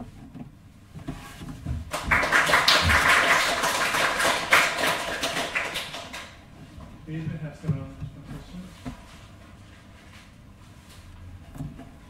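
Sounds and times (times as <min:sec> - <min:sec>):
audience applause: 0:01.9 - 0:06.4.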